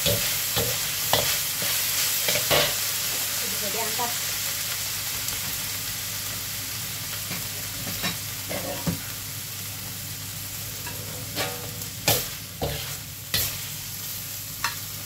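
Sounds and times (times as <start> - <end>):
meat sizzling in a wok: 0.0 - 15.0
metal spatula scraping wok: 10.8 - 13.7.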